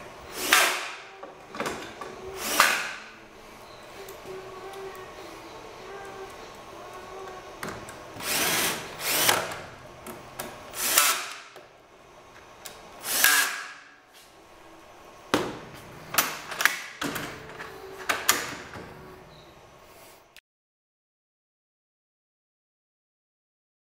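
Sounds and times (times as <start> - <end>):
cordless drill driving screws: 8.2 - 9.6, 10.8 - 11.4, 13.0 - 13.7.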